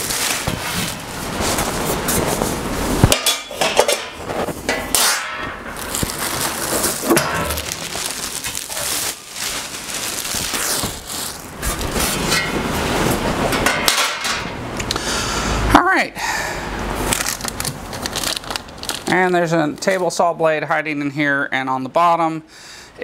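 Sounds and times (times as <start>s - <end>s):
packing material rustling: 0.0s - 13.5s, 17.0s - 20.2s.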